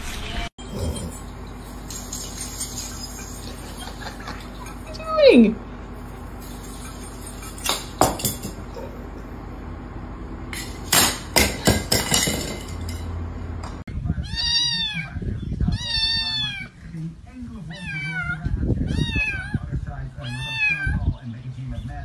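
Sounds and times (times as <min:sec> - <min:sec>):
kitten meowing: 0:14.2 - 0:15.1, 0:15.7 - 0:16.7, 0:17.7 - 0:19.6, 0:20.2 - 0:21.0.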